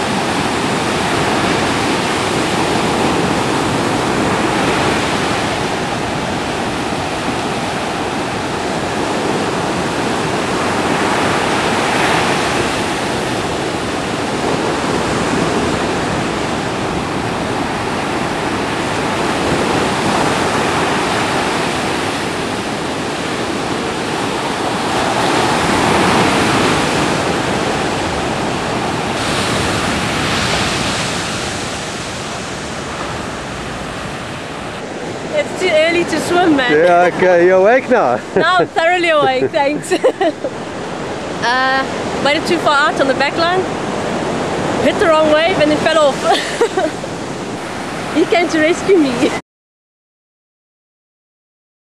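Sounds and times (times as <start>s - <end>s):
ocean surf breaking: 0.0s - 49.4s.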